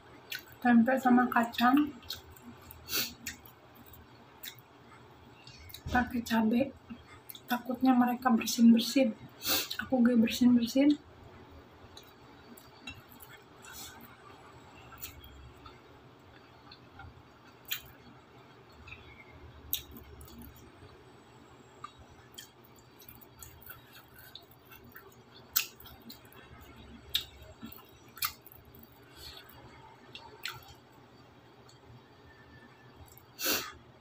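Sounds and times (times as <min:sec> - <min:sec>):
low steady hum: 0:00.0 - 0:34.0
soft chewing: 0:00.2 - 0:00.6, 0:01.3 - 0:05.9, 0:06.8 - 0:07.9, 0:09.3 - 0:09.9, 0:11.8 - 0:21.0, 0:21.7 - 0:33.8.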